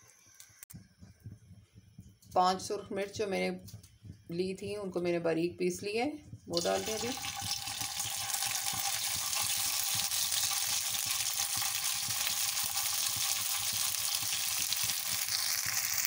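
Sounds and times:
chillies sizzling in hot oil: 0:06.5 - 0:16.0.

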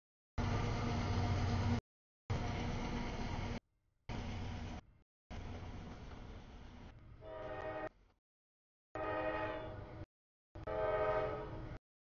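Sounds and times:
low train rumble: 0:00.4 - 0:08.1, 0:10.6 - 0:11.8
locomotive air horn blasts: 0:07.2 - 0:08.0, 0:09.0 - 0:09.9, 0:10.6 - 0:11.6.

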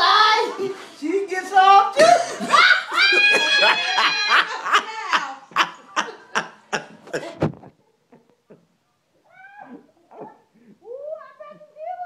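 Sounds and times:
person laughing hard: 0:02.0 - 0:07.7.

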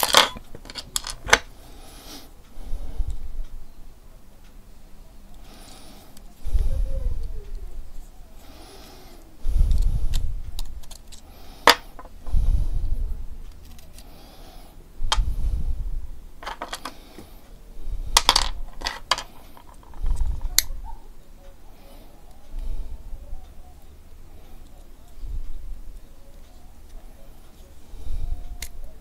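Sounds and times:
metal knife parts clicking: 0:09.7 - 0:12.1.

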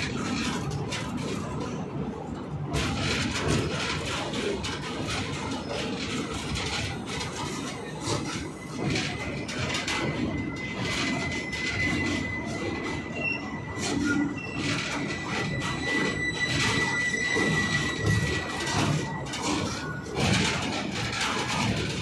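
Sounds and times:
train wheels clattering: 0:00.0 - 0:22.0
high-pitched wheel squeal: 0:08.2 - 0:20.4.

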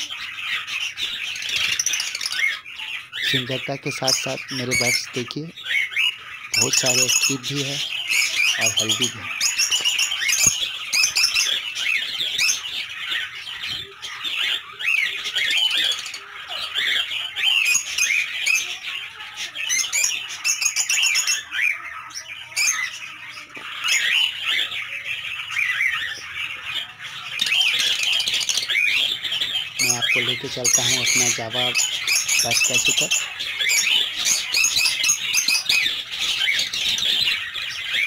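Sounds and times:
lovebirds calling: 0:00.0 - 0:38.0.

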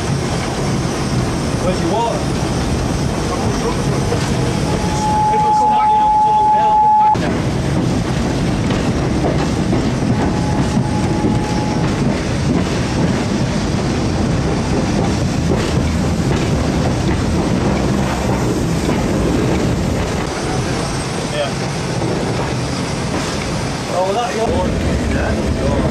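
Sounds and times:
steam locomotive working: 0:00.0 - 0:25.9.

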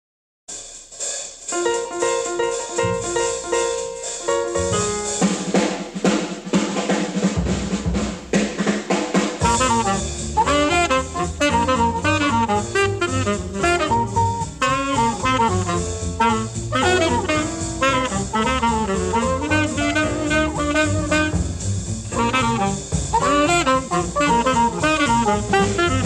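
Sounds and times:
drums: 0:00.5 - 0:26.0
bass: 0:01.5 - 0:06.2, 0:07.2 - 0:08.7, 0:09.4 - 0:26.0
saxophone fast runs: 0:09.4 - 0:21.6, 0:22.2 - 0:26.0
horns playing held notes: 0:09.4 - 0:26.0.

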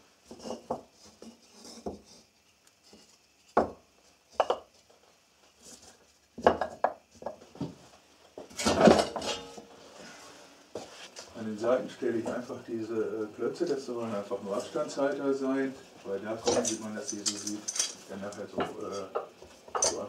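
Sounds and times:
wooden blocks knocking on workbench: 0:03.6 - 0:04.7, 0:06.4 - 0:07.8.

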